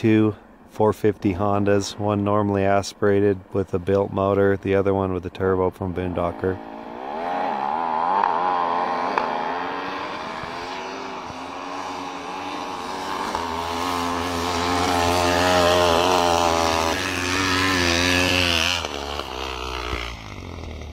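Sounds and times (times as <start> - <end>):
snow bike engine revving: 0.0 - 20.9.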